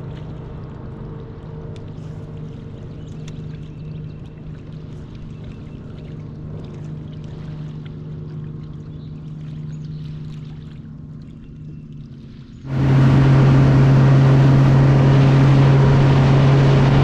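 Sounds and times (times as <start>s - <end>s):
water lapping at hull: 0.0s - 17.0s
electric motor humming: 12.7s - 17.0s.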